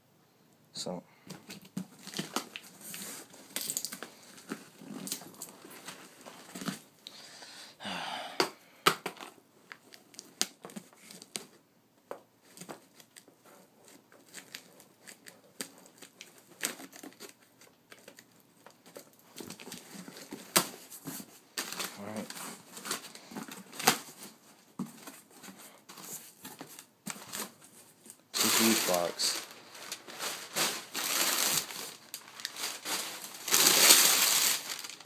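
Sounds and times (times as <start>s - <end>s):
tape crinkling: 1.3s - 6.8s, 9.2s - 11.6s, 12.4s - 24.4s, 25.0s - 35.0s
packing tape tearing off: 28.3s - 35.0s.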